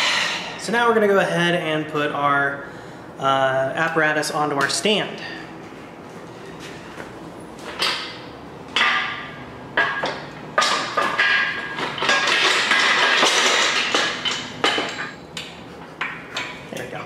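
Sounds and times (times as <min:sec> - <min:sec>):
sharp metal knocks: 0:08.8 - 0:15.2.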